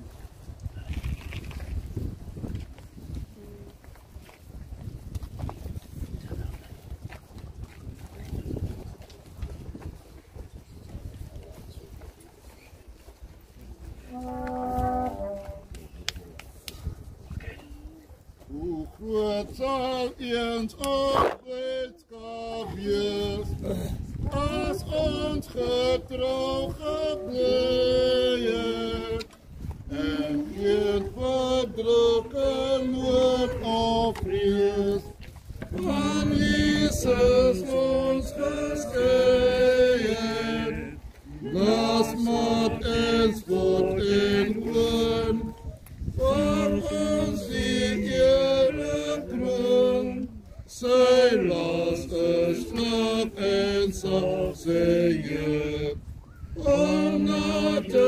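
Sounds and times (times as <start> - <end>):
mourners singing a hymn: 14.1 - 15.7, 18.6 - 58.0.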